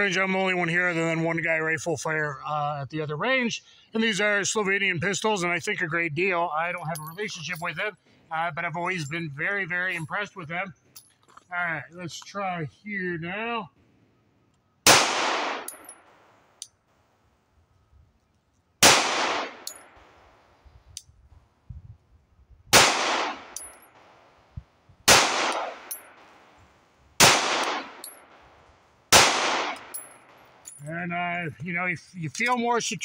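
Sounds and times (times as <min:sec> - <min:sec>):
pistol shots: 0:14.8 - 0:16.4, 0:18.8 - 0:20.3, 0:22.7 - 0:24.2, 0:25.1 - 0:26.5, 0:27.2 - 0:28.5, 0:29.1 - 0:30.6.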